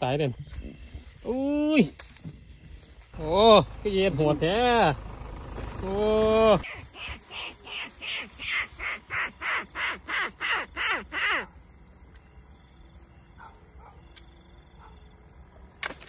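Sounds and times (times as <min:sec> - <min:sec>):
rat call squeaks: 0:06.6 - 0:11.4.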